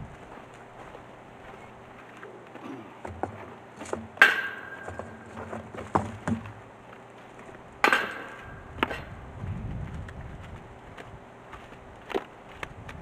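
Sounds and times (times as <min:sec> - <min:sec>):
rocks knocking and clanking: 0:03.0 - 0:06.6.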